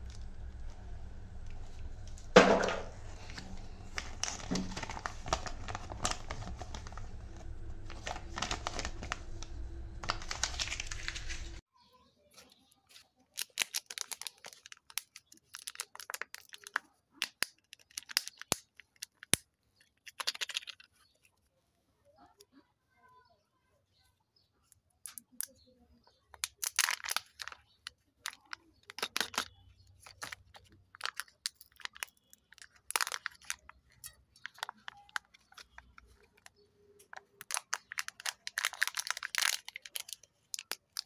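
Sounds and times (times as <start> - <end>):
plastic wrapper crinkling and tearing: 0.0 - 11.6, 12.4 - 21.4, 26.4 - 41.0
steady low hum: 0.0 - 11.6
sharp knock: 2.4 - 2.9
plastic toy parts clicking: 12.4 - 21.4, 24.7 - 25.6, 26.3 - 41.0.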